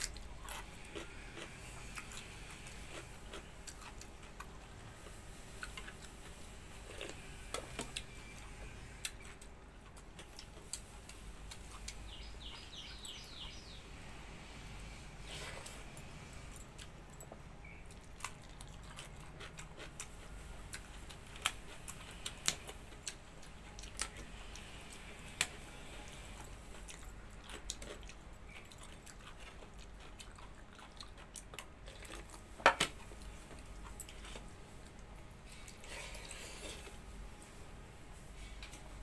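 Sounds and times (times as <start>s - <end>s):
chewing and mouth smacks: 0.0s - 7.3s, 16.8s - 25.6s, 26.8s - 35.9s.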